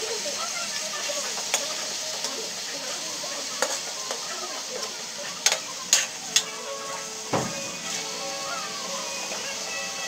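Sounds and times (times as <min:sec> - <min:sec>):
chicken sizzling in oil: 0:00.0 - 0:10.0.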